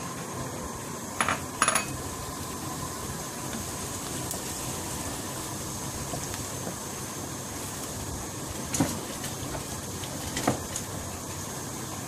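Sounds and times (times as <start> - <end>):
onions sizzling in oil: 0.0 - 12.0
utensils clinking against pan: 1.2 - 2.0.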